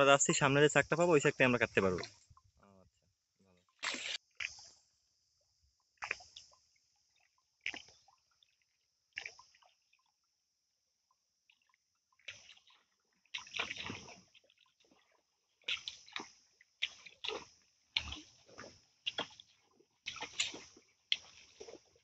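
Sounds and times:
paddle splashing in water: 3.6 - 4.8, 5.9 - 10.1, 11.5 - 22.0.

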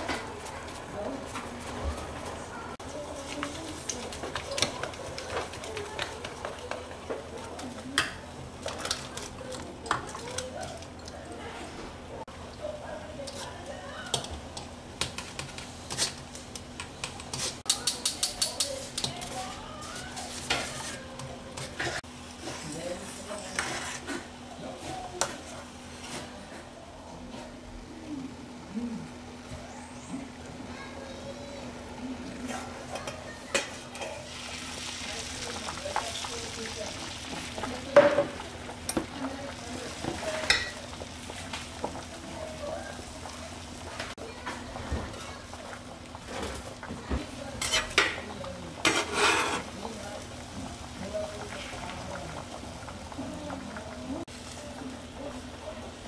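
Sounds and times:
metal spoon scraping strainer: 23.4 - 24.3, 48.8 - 49.7
egg sizzling in a pan: 29.7 - 56.0.

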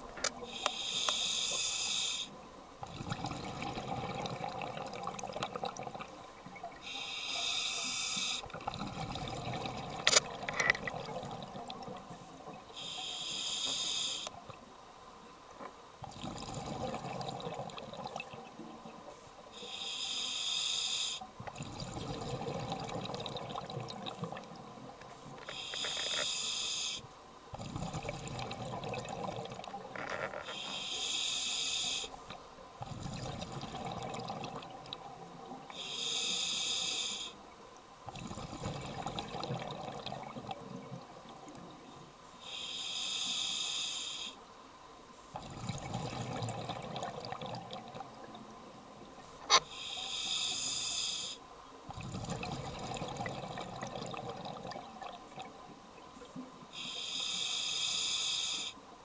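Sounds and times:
regulator hissing inhale: 0.5 - 2.4, 6.8 - 8.4, 12.8 - 14.3, 19.5 - 21.2, 25.4 - 27.1, 30.4 - 32.3, 35.7 - 37.4, 42.4 - 44.4, 49.6 - 51.4, 56.7 - 58.8.

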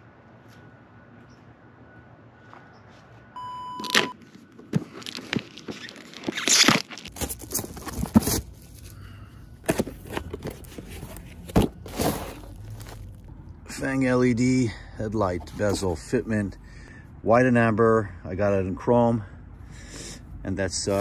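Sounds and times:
cardboard and plastic packaging rustling: 3.8 - 13.3.

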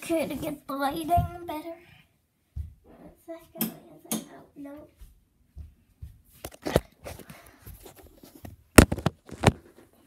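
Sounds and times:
phone being handled: 8.7 - 9.7.

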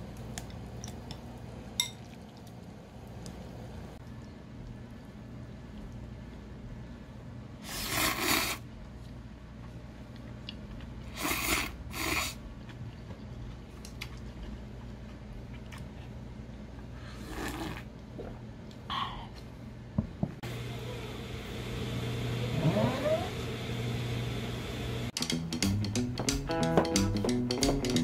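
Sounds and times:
low steady hum: 0.0 - 7.6
person slurping noodles: 7.6 - 8.6, 11.1 - 12.4, 17.1 - 18.4.

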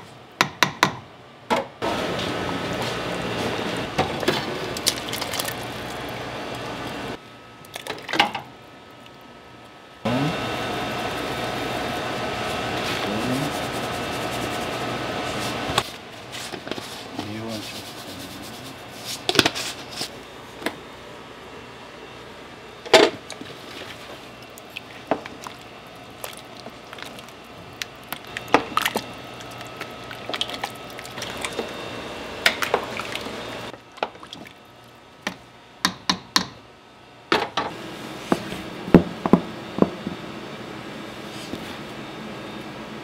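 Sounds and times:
low background hum: 0.0 - 43.0
liquid sounds: 4.6 - 6.8, 23.3 - 35.0.

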